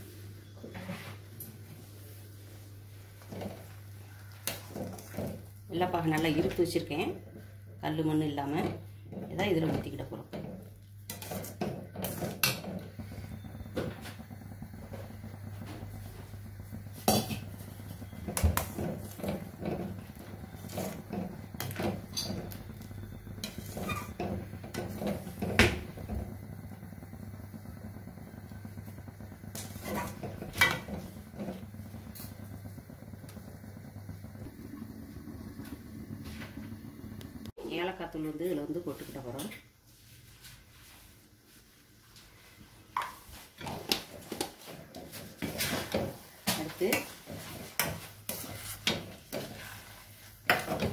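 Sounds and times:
steady low hum: 1.4s - 38.6s.

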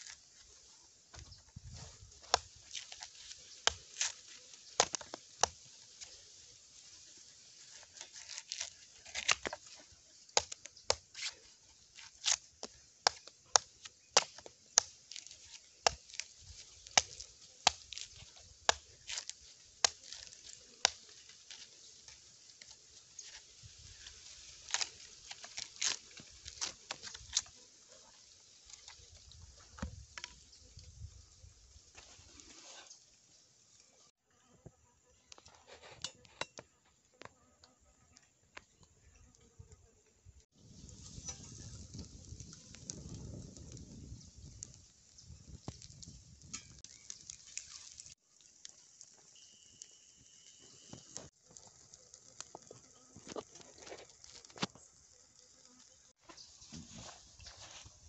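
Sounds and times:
knife chopping coconut husk: 2.2s - 5.6s, 7.8s - 21.7s, 24.6s - 27.5s.

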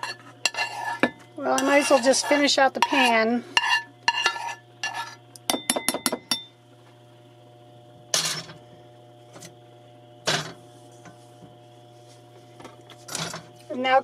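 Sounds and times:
metal spoon clinking on pans: 0.0s - 2.1s, 2.8s - 6.5s
steady low hum: 0.0s - 14.0s.

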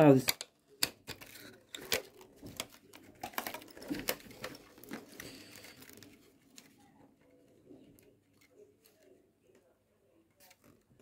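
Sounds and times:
plastic toy clicks and taps: 0.2s - 4.5s
packaging rustling: 0.8s - 9.1s.

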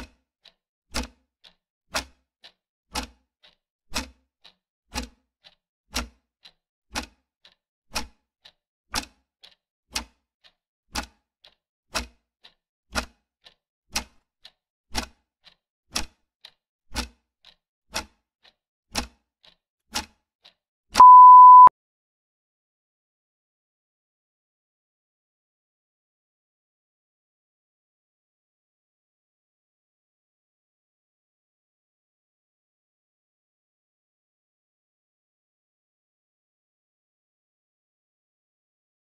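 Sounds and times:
clock ticking: 7.0s - 8.1s, 11.0s - 12.1s
timer beep: 21.0s - 21.7s.

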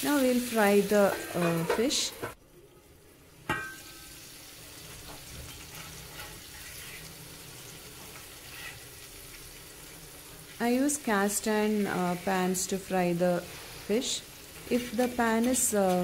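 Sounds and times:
fish sizzling in a pan: 0.0s - 1.8s, 3.5s - 16.0s
metal lid clinking: 3.5s - 3.9s
metal spatula scraping: 4.9s - 9.4s.

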